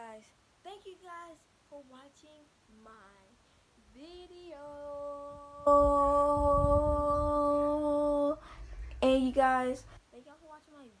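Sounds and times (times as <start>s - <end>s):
girl singing: 0.7s - 9.9s
low rumble: 4.8s - 9.1s.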